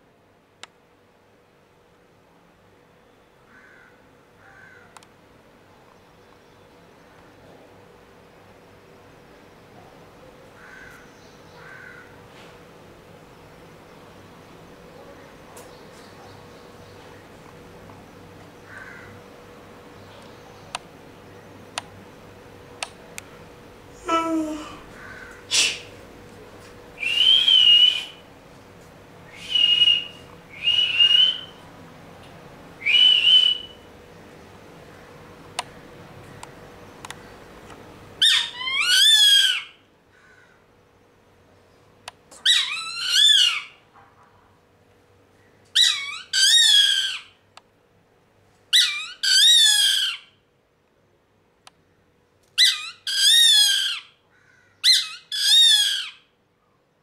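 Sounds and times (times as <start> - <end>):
bird of prey whistling calls: 27.0 - 28.2, 29.3 - 31.6, 32.8 - 33.8, 38.2 - 39.8, 42.4 - 43.8, 45.8 - 47.4, 48.8 - 50.3, 52.6 - 54.2, 54.8 - 56.2.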